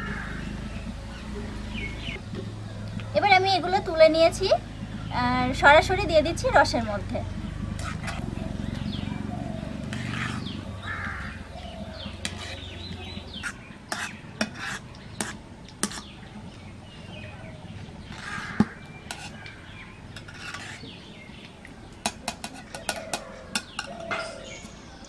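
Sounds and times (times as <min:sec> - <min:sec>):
metal spoon and pots clinking: 0:22.0 - 0:24.7.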